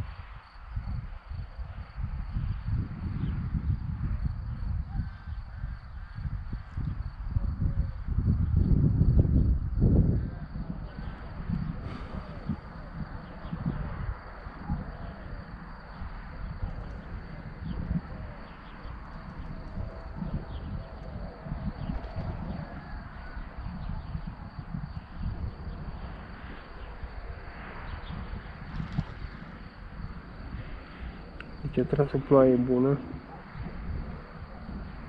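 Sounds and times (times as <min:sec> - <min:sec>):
wind buffeting microphone: 0:00.0 - 0:35.0
faint bird calls: 0:10.2 - 0:25.1.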